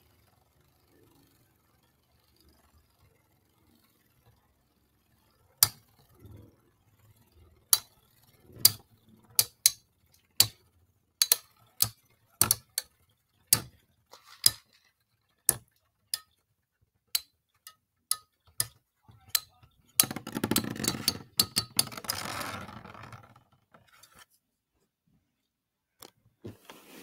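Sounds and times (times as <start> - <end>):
spinning tops clicking together: 0.0 - 16.4.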